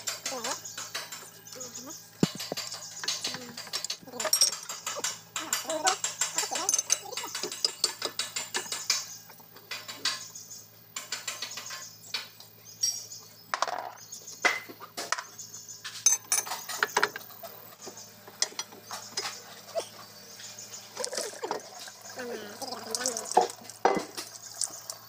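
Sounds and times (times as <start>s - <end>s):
wrenches clinking on steel: 0.0s - 9.1s, 16.0s - 17.2s.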